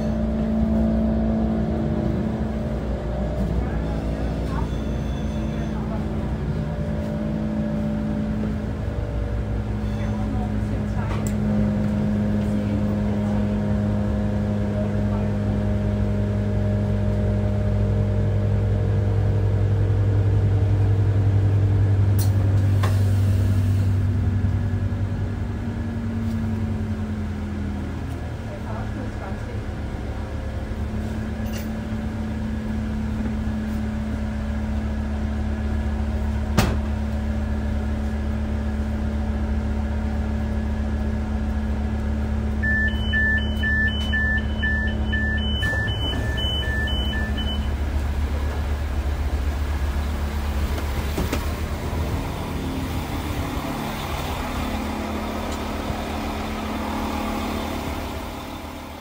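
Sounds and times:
diesel engine humming: 0.0 - 59.0
two-pitch fast beeps: 42.6 - 47.8.

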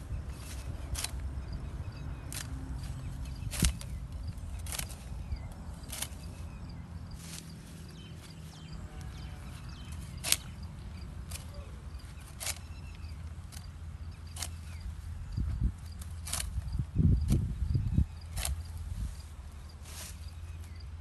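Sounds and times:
sickle cutting stalks: 0.0 - 21.0.

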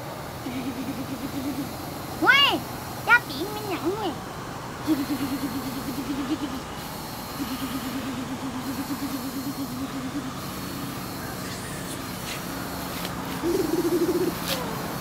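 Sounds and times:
scooter engine running: 0.0 - 15.0.

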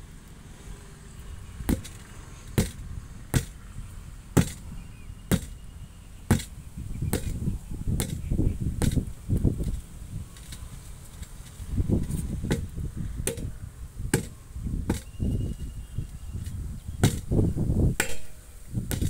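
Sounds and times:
hammer strikes on tyre rim: 1.7 - 3.6, 4.4 - 4.6, 5.3 - 5.6, 6.3 - 7.4, 8.0 - 9.0, 12.4 - 15.2, 17.0 - 17.3, 18.0 - 19.0
low scuffing and shuffling: 7.2 - 13.4.

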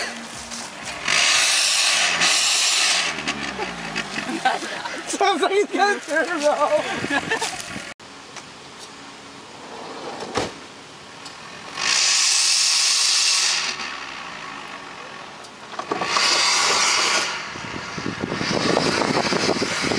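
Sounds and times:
minivan engine revving with whoosh: 0.0 - 5.2, 11.4 - 19.9
gravel crackling under tyres: 0.0 - 19.9.

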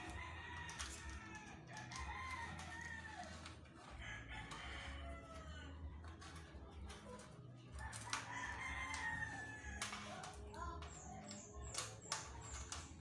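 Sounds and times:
rooster crowing: 0.1 - 5.8.

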